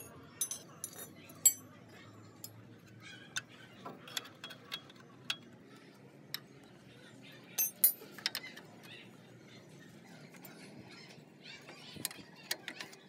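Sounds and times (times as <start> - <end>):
spanner clinking on steel: 0.0 - 1.7, 7.6 - 8.4.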